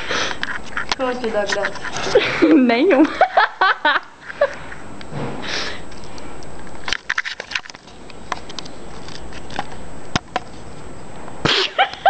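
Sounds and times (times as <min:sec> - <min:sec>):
camera handling rubbing: 0:06.8 - 0:10.5.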